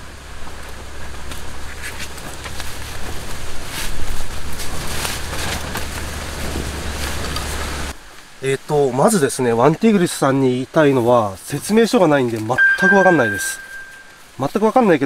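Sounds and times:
strap and fabric rustling: 1.2s - 7.9s.

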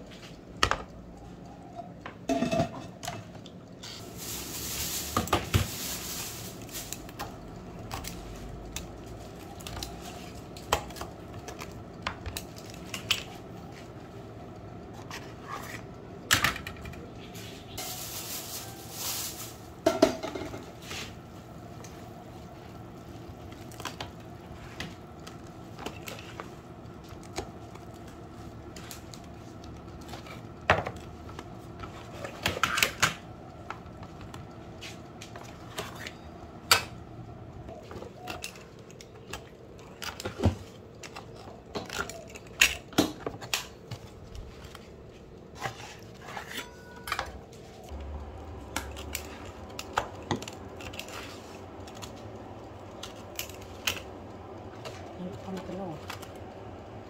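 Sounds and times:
faint steady hum: 0.0s - 57.0s
pizza cutter rolling through pizza: 14.9s - 16.4s, 17.0s - 36.3s, 43.3s - 57.0s.

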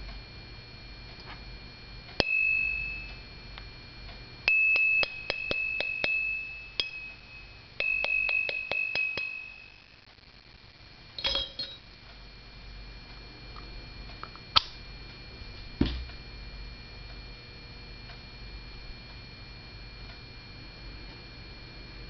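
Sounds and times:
metal socket ringing when struck: 2.2s - 3.2s, 4.5s - 9.8s, 11.2s - 11.8s.

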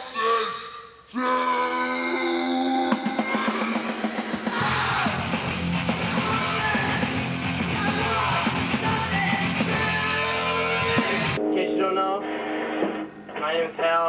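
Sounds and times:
yelled vocals: 0.0s - 11.4s
punk rock music: 2.9s - 14.0s.

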